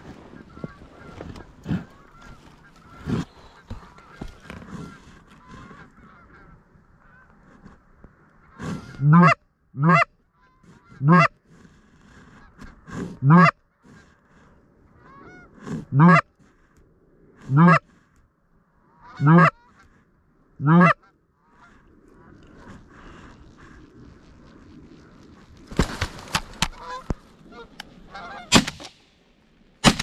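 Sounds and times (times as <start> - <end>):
goose honking: 0.3 - 7.4, 8.4 - 11.4, 12.4 - 13.9, 15.0 - 16.3, 17.5 - 17.8, 18.9 - 19.9, 20.6 - 23.2, 26.6 - 28.6.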